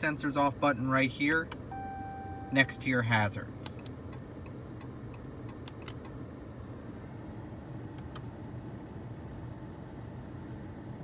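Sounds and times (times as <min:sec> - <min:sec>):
low hum inside car cabin: 0:00.0 - 0:11.0
light irregular clicks: 0:03.6 - 0:06.2.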